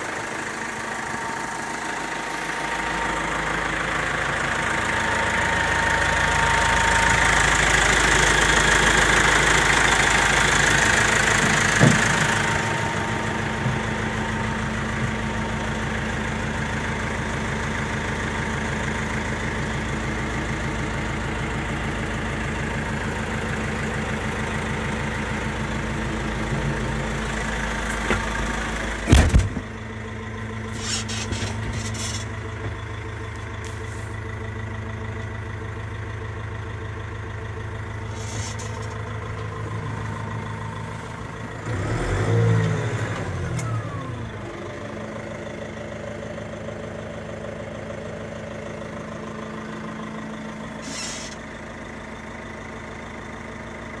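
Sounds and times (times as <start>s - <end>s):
tractor diesel engine idling: 0.0s - 54.0s
sharp clunk: 29.1s - 29.7s.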